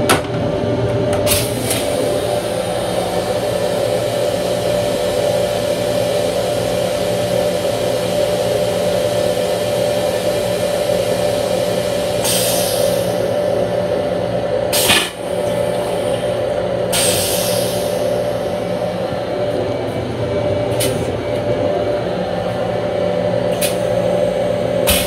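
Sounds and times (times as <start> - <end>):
railcar equipment hum: 0.0 - 25.0.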